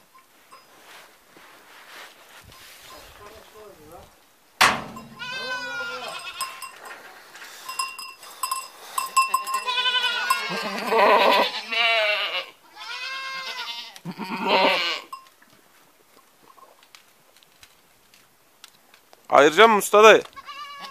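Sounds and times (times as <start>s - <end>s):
small bell clinking: 0.1s - 0.8s, 4.9s - 7.0s, 7.6s - 10.7s
goats bleating: 5.0s - 6.8s, 9.3s - 15.1s, 20.3s - 20.9s.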